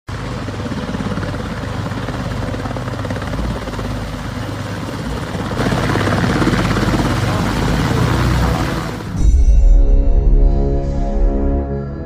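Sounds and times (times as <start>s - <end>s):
helicopter engine noise: 0.1s - 9.2s
helicopter rotor beat: 0.1s - 9.2s.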